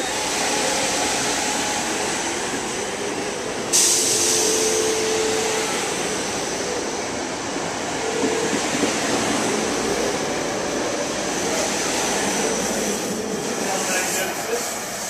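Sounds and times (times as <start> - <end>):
electric train rolling past: 0.0 - 15.0
loud hiss of air: 3.6 - 6.6, 12.0 - 15.0.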